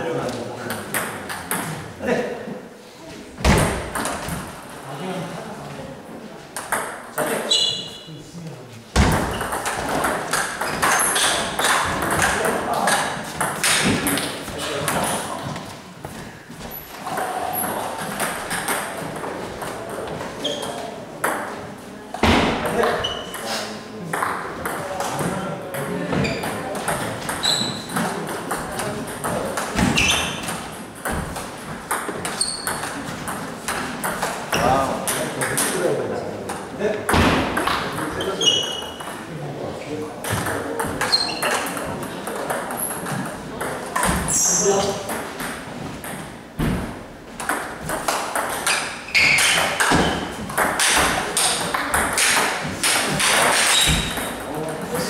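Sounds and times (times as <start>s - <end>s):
ping pong ball hitting paddles: 0.6s - 1.9s, 3.4s - 4.5s, 6.6s - 7.5s, 9.0s - 15.6s, 17.0s - 21.6s, 22.2s - 23.5s, 24.1s - 39.3s, 40.2s - 55.0s
ball bouncing on table: 3.4s - 4.4s, 9.0s - 15.2s, 24.1s - 35.8s, 37.1s - 38.2s, 45.0s - 54.8s
shoe squeaks: 7.4s - 8.1s, 10.6s - 11.5s, 20.4s - 20.9s, 23.0s - 23.6s, 26.2s - 26.5s, 27.4s - 28.0s, 29.9s - 30.5s, 32.4s - 32.9s, 38.1s - 39.0s, 41.0s - 41.7s, 44.3s - 44.9s, 48.7s - 50.4s, 53.6s - 54.3s.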